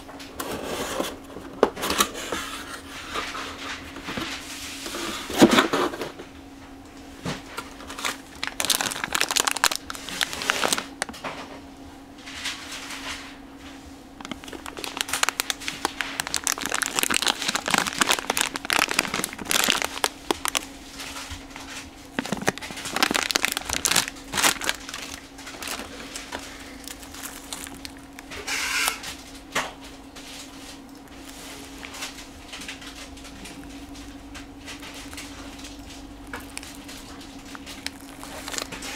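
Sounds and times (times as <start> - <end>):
faint steady hum: 0.0 - 38.9
plastic bags crinkling: 7.5 - 11.2, 14.2 - 29.5, 30.3 - 38.9.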